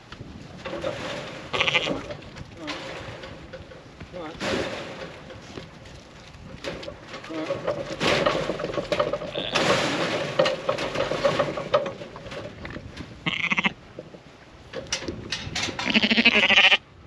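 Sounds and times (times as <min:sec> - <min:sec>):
rustling and knocking in a pen: 0:00.0 - 0:16.5
sheep bleating: 0:01.5 - 0:02.0, 0:13.2 - 0:13.8, 0:15.8 - 0:16.8.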